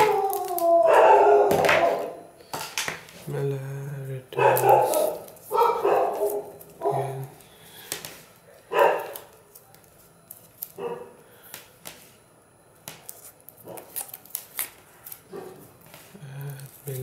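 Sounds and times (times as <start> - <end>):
plastic tape peeling crackles: 0.0 - 0.9, 4.4 - 10.8, 12.9 - 17.0.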